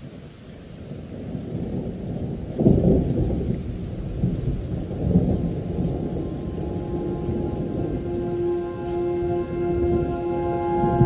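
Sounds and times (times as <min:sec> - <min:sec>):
steady rain: 0:00.0 - 0:11.0
rolling thunder: 0:01.2 - 0:11.0
faint music tones: 0:05.6 - 0:11.0.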